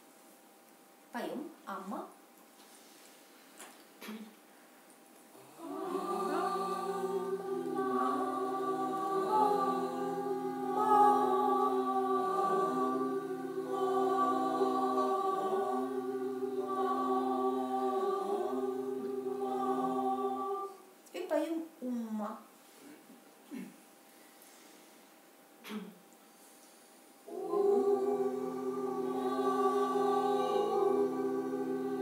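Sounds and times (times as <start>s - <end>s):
person chanting held notes: 5.4s - 20.9s, 27.3s - 32.0s.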